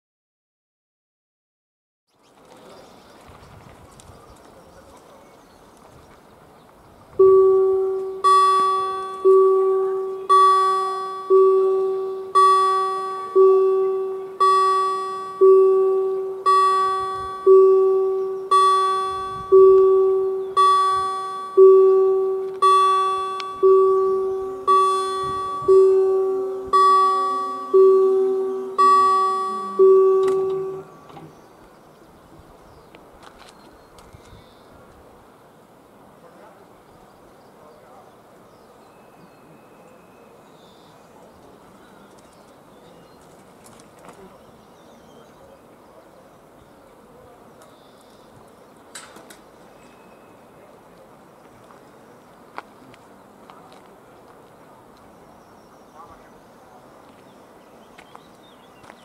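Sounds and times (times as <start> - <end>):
electronic crossing bell ringing: 7.2 - 31.0.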